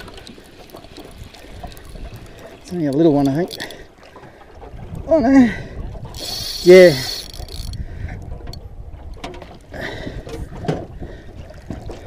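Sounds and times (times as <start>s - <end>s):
wind and water rumble: 0.0s - 12.0s
spinning reel clicking: 3.2s - 3.7s, 6.1s - 7.8s.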